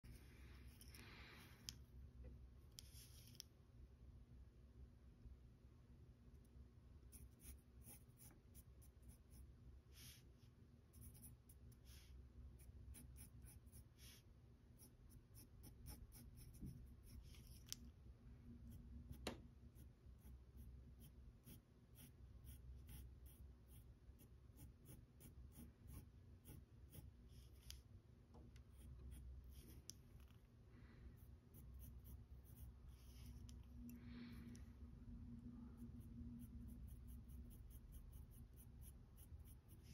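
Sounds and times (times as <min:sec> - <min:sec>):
low steady hum: 0:00.0 - 0:39.9
pencil scratching on paper: 0:07.1 - 0:09.4, 0:10.9 - 0:14.2, 0:14.8 - 0:17.8, 0:18.7 - 0:27.8, 0:28.6 - 0:30.4, 0:31.2 - 0:33.7, 0:35.8 - 0:39.9.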